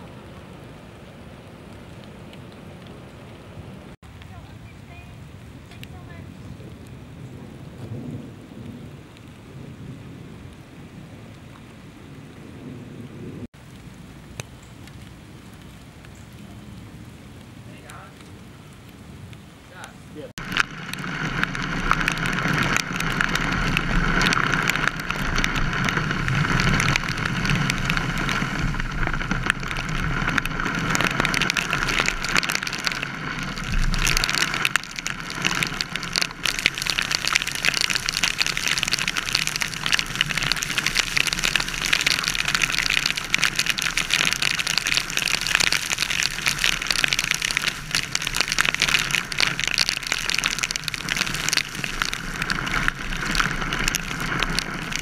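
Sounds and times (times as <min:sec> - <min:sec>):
road and tyre noise: 0:00.0 - 0:08.7, 0:09.5 - 0:55.0
heavy rain on car: 0:12.6 - 0:55.0.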